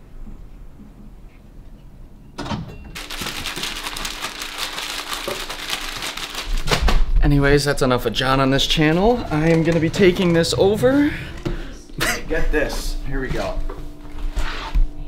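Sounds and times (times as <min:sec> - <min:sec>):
cardboard packaging rustling: 0:03.0 - 0:07.1
plastic bags crinkling and rattling: 0:03.0 - 0:07.1.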